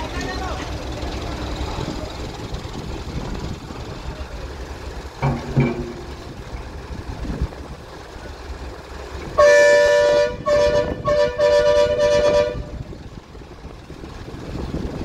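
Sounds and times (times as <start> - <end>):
loud two-tone horn blasts: 9.4 - 12.9.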